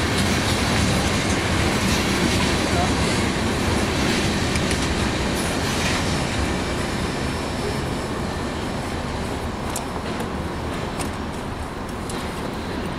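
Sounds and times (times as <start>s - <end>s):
train wheels rolling on rail: 0.0s - 12.9s
clicks at rail joints: 4.5s - 5.0s, 9.6s - 12.9s.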